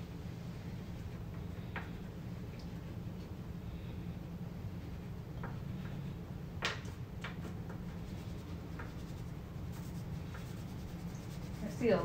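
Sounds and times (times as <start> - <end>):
steady low hum: 0.0 - 12.0
pastel scratching on paper: 7.9 - 12.0.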